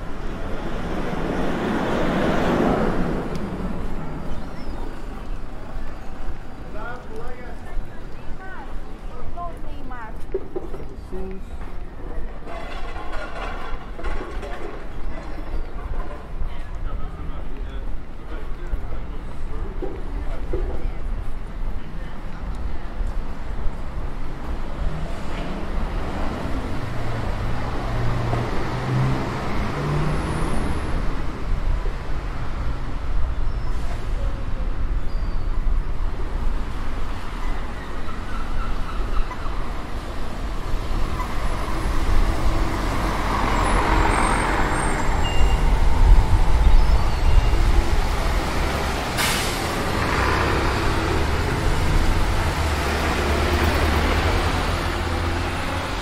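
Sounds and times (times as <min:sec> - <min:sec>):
passing cars and buses: 0:00.0 - 0:56.0
bus air brakes hiss: 0:49.0 - 0:49.9.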